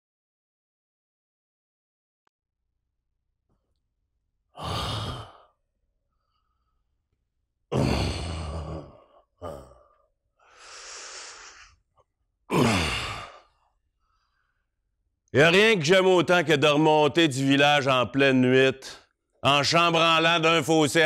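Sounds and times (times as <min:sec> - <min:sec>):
man sighing heavily: 0:12.5 - 0:13.6.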